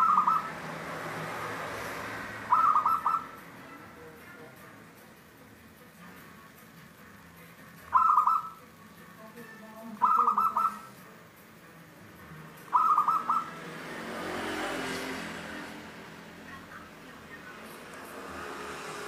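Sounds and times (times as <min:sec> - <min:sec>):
dove cooing: 0:00.0 - 0:00.7, 0:02.4 - 0:03.4, 0:07.9 - 0:08.6, 0:10.0 - 0:10.9, 0:12.7 - 0:13.6.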